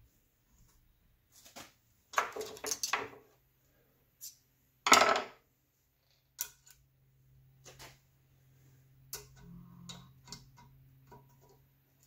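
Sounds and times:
steel parts clinking and clattering: 2.2s - 3.2s.

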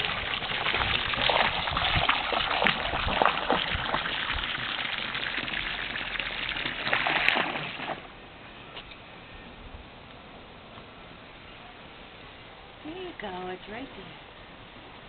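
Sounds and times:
hose water splashing into water: 0.0s - 8.1s.

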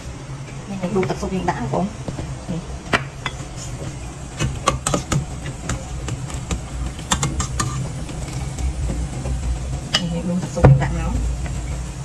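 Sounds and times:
steady low hum: 0.0s - 12.0s
utensils clinking on steel pot: 3.1s - 11.8s.

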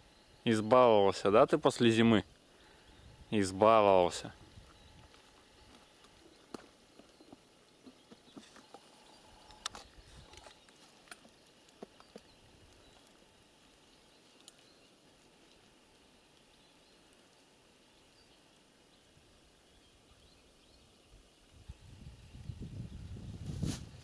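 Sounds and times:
faint clicks and rustles: 4.6s - 17.5s.

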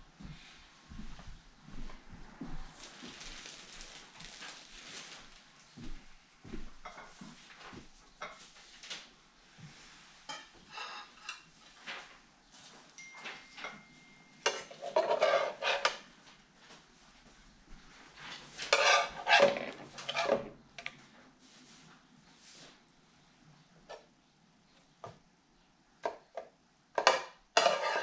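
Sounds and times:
dishes and utensils clattering: 10.3s - 11.8s, 13.0s - 16.1s, 18.4s - 20.5s, 27.0s - 28.0s.

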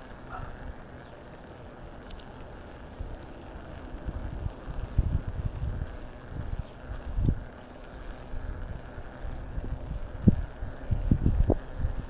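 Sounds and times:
wind buffeting microphone: 2.8s - 12.0s.

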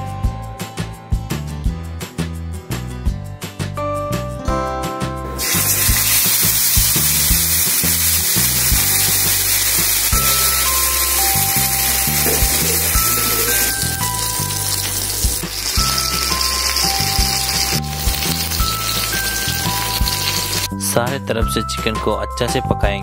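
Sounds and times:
background music: 0.0s - 23.0s
chicken sizzling in hot oil: 5.4s - 20.7s.

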